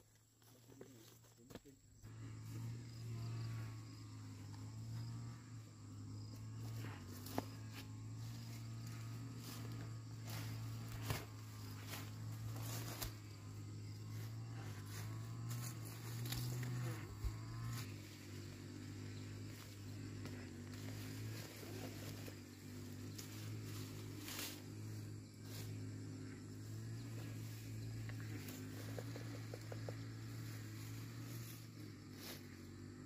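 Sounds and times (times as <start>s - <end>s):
steady low hum: 1.7s - 33.0s
footsteps through plants: 6.4s - 18.5s
rustling leafy plants: 6.6s - 32.9s.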